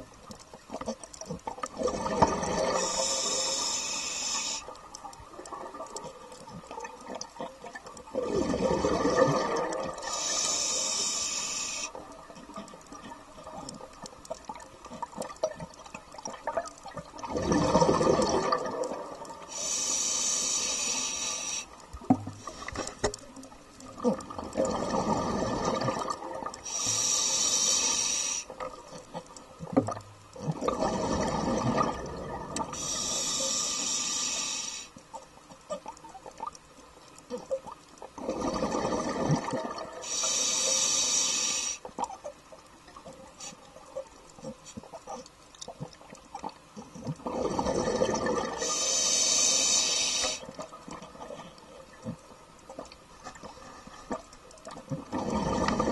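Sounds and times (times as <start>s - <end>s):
exhaled bubbles underwater: 0.0s - 3.6s, 5.3s - 10.9s, 12.0s - 19.6s, 21.9s - 26.7s, 28.6s - 33.0s, 37.3s - 40.1s, 42.8s - 48.8s, 50.3s - 55.9s
faint clicks: 0.0s - 8.2s, 9.7s - 17.3s
regulator hissing inhale: 2.7s - 4.8s, 10.0s - 12.0s, 19.5s - 21.8s, 22.4s - 23.0s, 26.6s - 28.6s, 32.7s - 35.1s, 40.0s - 41.9s, 48.6s - 50.6s.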